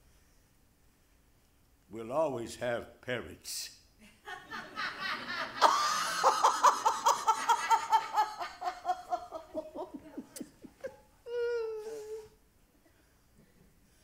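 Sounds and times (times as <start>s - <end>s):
woman laughing: 5.5s - 12.2s.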